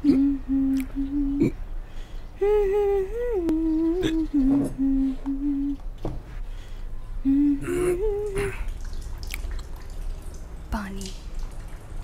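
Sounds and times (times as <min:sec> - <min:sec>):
person hiccuping: 0:00.0 - 0:01.6, 0:03.9 - 0:04.4, 0:07.6 - 0:08.7
person humming a slow tune: 0:00.0 - 0:01.7, 0:02.4 - 0:05.9, 0:07.2 - 0:08.7.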